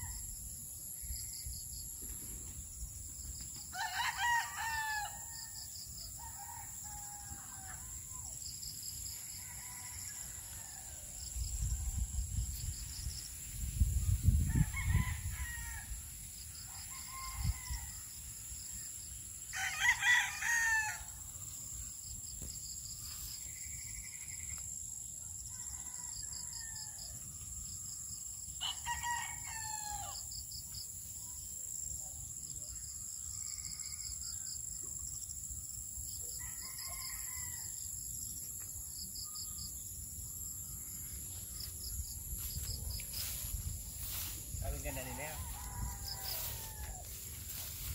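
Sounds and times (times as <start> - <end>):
roosters crowing: 3.6 - 8.1, 9.2 - 11.4, 14.4 - 18.2, 19.4 - 21.3, 25.4 - 27.2, 28.4 - 30.4, 36.3 - 38.1, 42.2 - 47.9.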